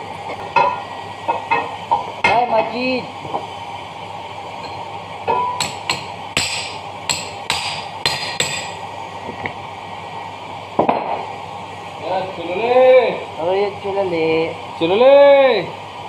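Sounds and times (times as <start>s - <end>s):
hammer tapping steel punch: 5.4s - 8.8s.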